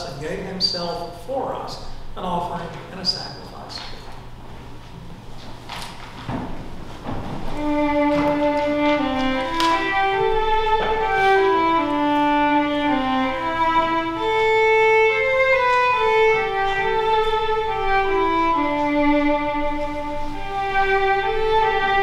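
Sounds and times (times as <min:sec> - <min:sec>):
slow instrumental melody: 0:07.5 - 0:22.0.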